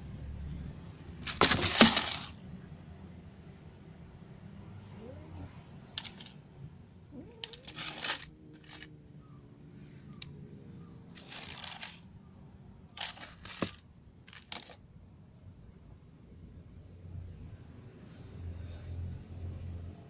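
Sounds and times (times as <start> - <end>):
kibble rattling in plastic tub: 1.2 - 2.4, 6.0 - 6.3, 7.4 - 8.9, 11.2 - 12.0, 13.0 - 14.8.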